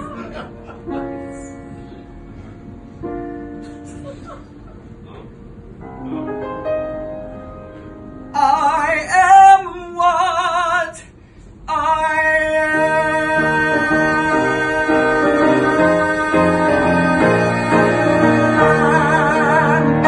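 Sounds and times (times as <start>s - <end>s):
piano accompaniment: 0.0s - 10.2s, 12.3s - 20.0s
man singing with vibrato: 8.3s - 20.0s.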